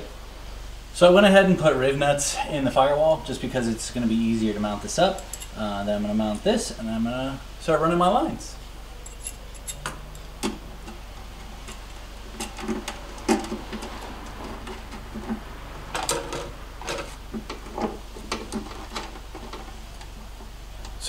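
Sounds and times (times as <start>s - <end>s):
hand tools clinking on metal: 5.2s - 5.6s, 9.0s - 11.0s.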